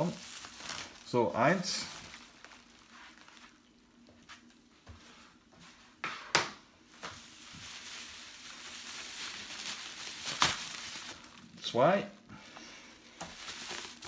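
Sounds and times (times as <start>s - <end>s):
paper and plastic wrap crinkling: 0.0s - 4.6s, 6.9s - 11.8s, 12.4s - 14.0s.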